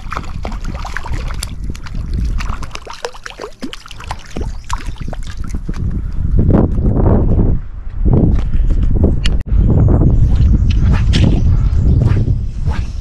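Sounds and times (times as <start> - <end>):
shallow water splashing: 0.0 - 5.8
water dripping: 0.0 - 5.8.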